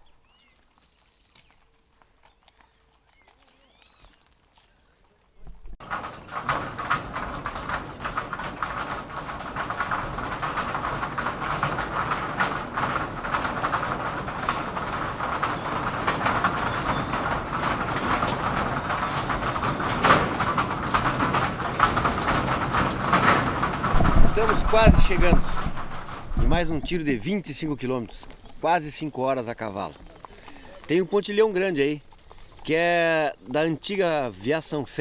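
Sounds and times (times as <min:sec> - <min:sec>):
hooves on steel bridge: 0:00.0 - 0:32.9
boots clattering on steel deck: 0:05.4 - 0:28.7.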